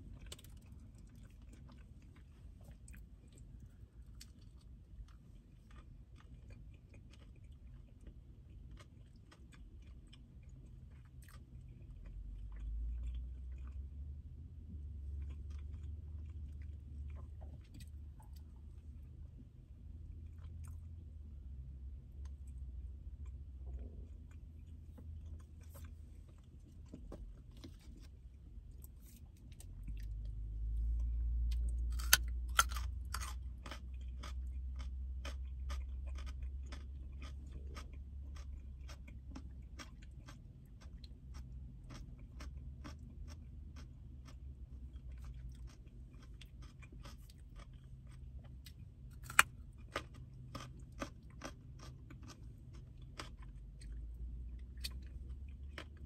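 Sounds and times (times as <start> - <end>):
low rumble: 11.6 - 37.1
crunchy carrot chewing: 22.2 - 56.0.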